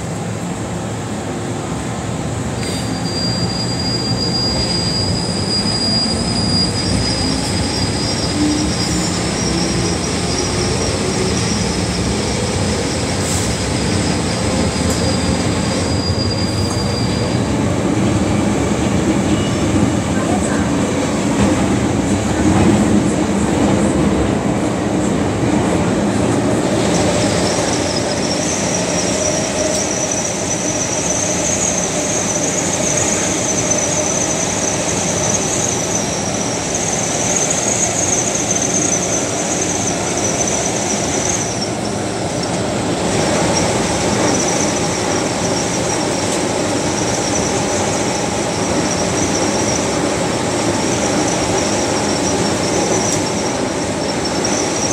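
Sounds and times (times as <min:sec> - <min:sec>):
rumble of train wheels on rail: 0:00.0 - 0:54.9
high-pitched wheel squeal: 0:02.6 - 0:17.5, 0:26.8 - 0:54.9.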